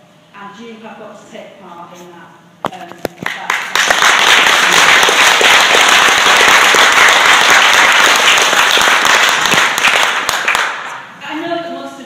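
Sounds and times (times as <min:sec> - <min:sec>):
crowd applauding: 0:03.2 - 0:11.0.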